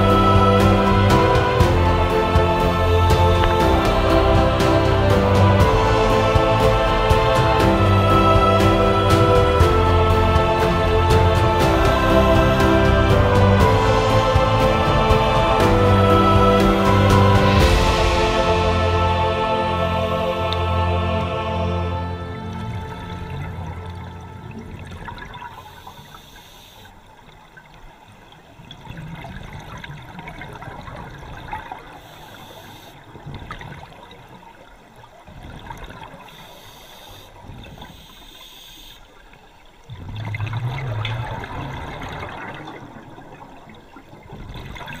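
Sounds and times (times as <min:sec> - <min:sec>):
bubbles gurgling: 0:22.4 - 0:26.0, 0:28.6 - 0:32.0, 0:33.1 - 0:36.4, 0:39.7 - 0:45.0.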